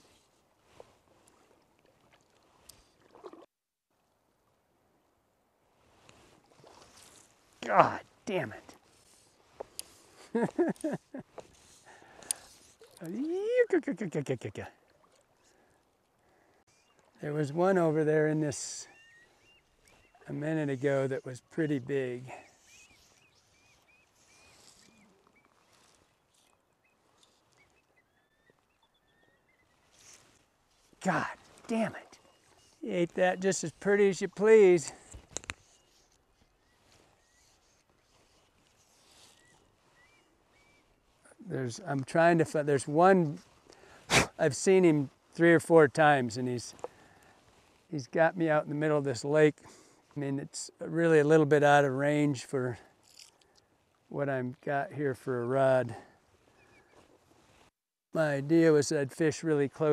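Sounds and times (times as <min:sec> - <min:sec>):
bird chirping: 0:22.4 - 0:30.2
gliding bird calls: 0:22.4 - 0:30.4, 0:35.6 - 0:41.0.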